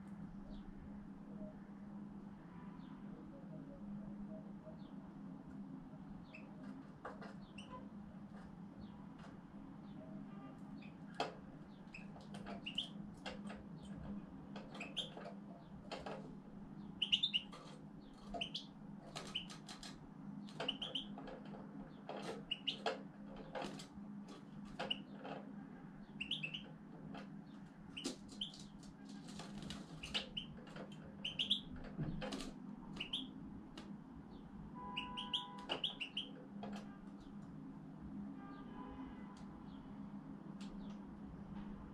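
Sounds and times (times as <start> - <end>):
finch chirping: 6.2 - 7.8, 10.8 - 14.0, 14.6 - 16.1, 16.8 - 21.3, 21.9 - 23.8, 24.7 - 25.2, 26.0 - 26.8, 27.6 - 33.4, 34.3 - 37.3.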